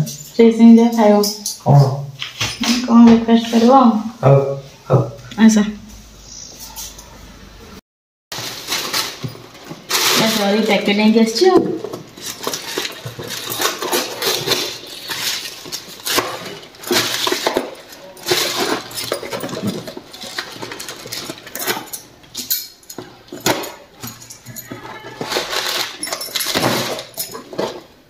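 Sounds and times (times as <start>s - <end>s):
plastic bag rustling and crinkling: 8.3s - 28.0s.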